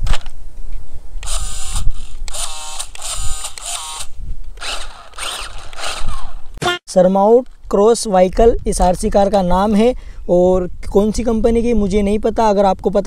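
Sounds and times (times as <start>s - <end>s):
toy car electric motor whirring: 1.2s - 6.6s.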